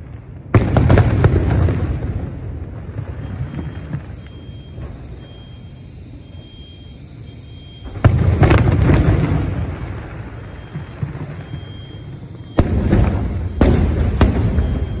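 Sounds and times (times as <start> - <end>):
firework rumble: 0.0 - 15.0
firework shells bursting: 3.2 - 15.0.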